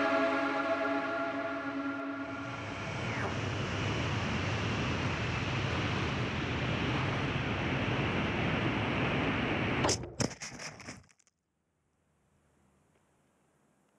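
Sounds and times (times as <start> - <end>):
wind rush and motor noise: 2.4 - 10.0.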